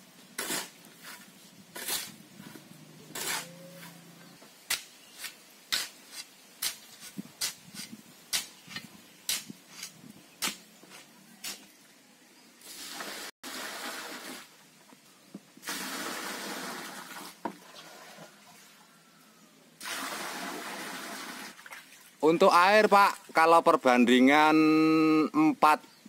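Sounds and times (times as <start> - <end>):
hoe scraping cement mix: 0.4 - 4.4
water pouring onto pile: 15.6 - 18.1, 19.8 - 22.1.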